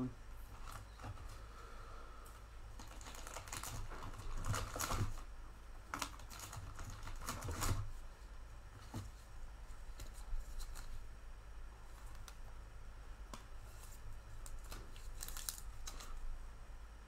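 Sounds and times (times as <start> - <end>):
low steady hum: 0.0 - 17.0
cards and plastic sleeves rustling: 2.7 - 5.3, 5.9 - 8.2, 8.8 - 11.0, 13.3 - 16.3.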